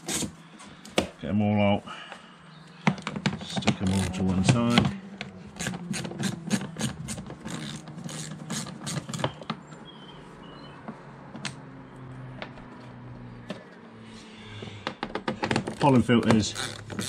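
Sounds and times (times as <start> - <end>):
ratchet wrench clicking: 5.6 - 9.2, 16.5 - 17.0.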